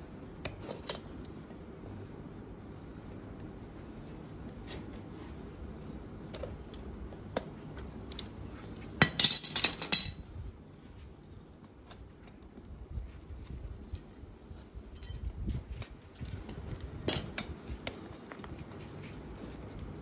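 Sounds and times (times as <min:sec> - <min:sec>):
metal tools clinking on horseshoe: 0:00.4 - 0:01.4, 0:09.0 - 0:10.3, 0:13.8 - 0:15.3, 0:17.0 - 0:17.8.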